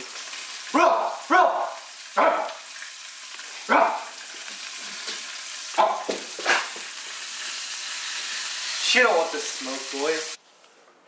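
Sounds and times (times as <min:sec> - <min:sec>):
fish frying in hot oil: 0:00.0 - 0:05.8, 0:06.8 - 0:10.4
short loud vocal barks: 0:00.8 - 0:02.6, 0:03.6 - 0:04.2, 0:05.7 - 0:06.6.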